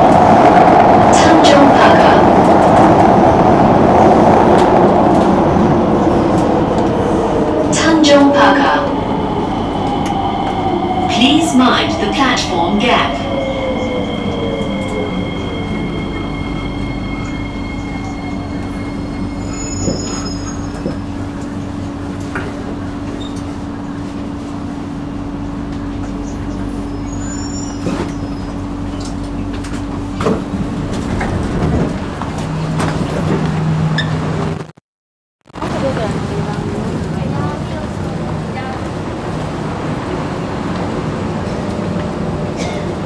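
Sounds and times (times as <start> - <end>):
train motor hum: 0.0 - 19.4
train wheels rumbling on rails: 0.0 - 34.6, 35.6 - 43.0.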